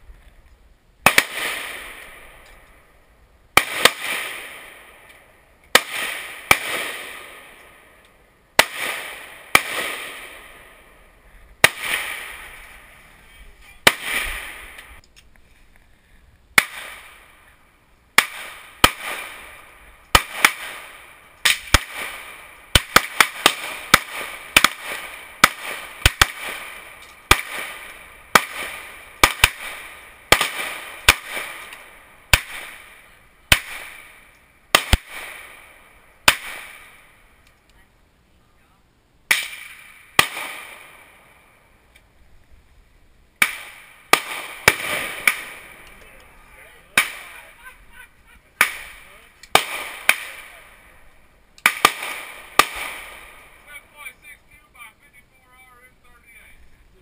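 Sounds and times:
pistol and rifle shots: 1.0 - 2.8, 3.6 - 12.8, 13.8 - 15.0, 16.6 - 17.4, 18.1 - 37.2, 39.3 - 41.5, 43.4 - 46.3, 46.9 - 47.5, 48.6 - 53.7.

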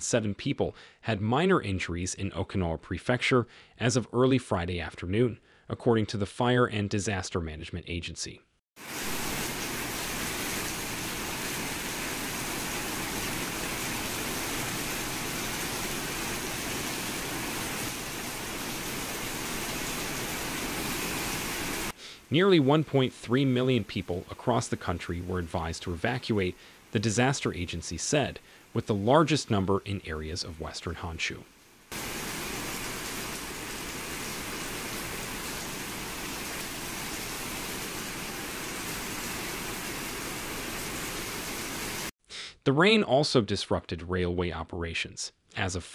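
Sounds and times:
rainwater splashing on tiled floor: 8.8 - 22.0, 31.8 - 42.1.

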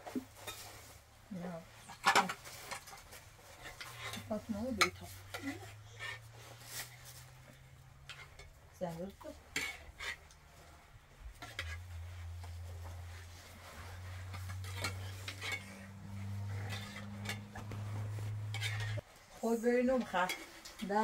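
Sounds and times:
dishes and utensils clinking: 14.3 - 19.0.

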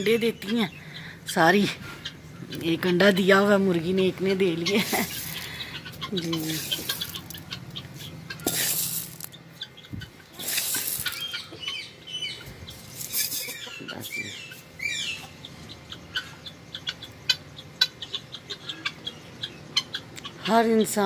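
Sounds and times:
chickens calling: 0.0 - 21.0
rustling: 6.3 - 9.4, 10.4 - 11.3.

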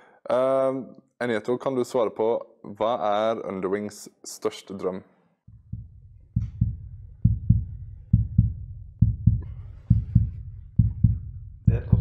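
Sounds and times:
heartbeat thumps: 5.5 - 12.0.

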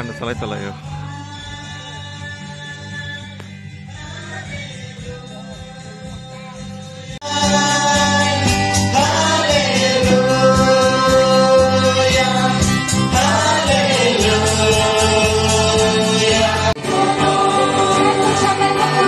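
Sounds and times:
quiet backing music: 0.0 - 19.0
group singing through pa: 3.9 - 19.0.

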